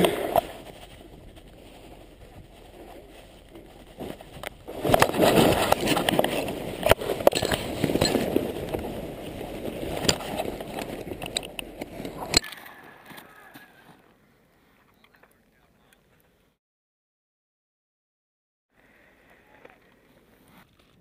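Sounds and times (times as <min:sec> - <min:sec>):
wind noise on microphone: 0:00.0 - 0:12.4
rustling and scraping of gear: 0:00.0 - 0:15.3, 0:19.6 - 0:21.0.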